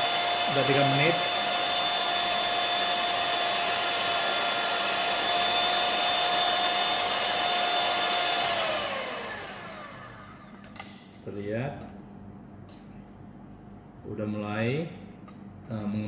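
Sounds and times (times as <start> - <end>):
electric mixer whining: 0.0 - 10.8.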